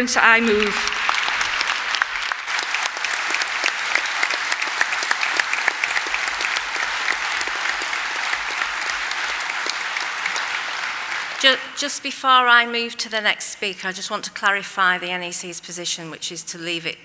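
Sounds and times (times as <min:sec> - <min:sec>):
large audience applauding: 0:00.4 - 0:11.8.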